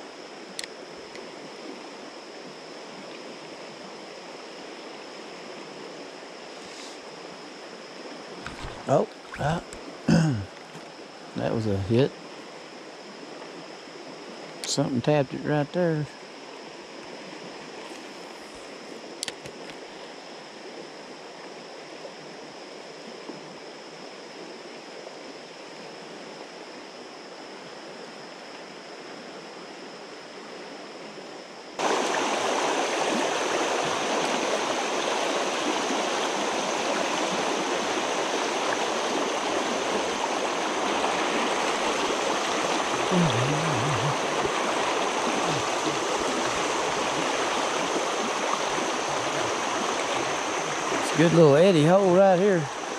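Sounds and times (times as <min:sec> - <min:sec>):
faint click: 0:00.6 - 0:01.3, 0:19.2 - 0:19.8
river water flowing: 0:31.8 - 0:52.9
water rushing over rocks: 0:31.8 - 0:52.9.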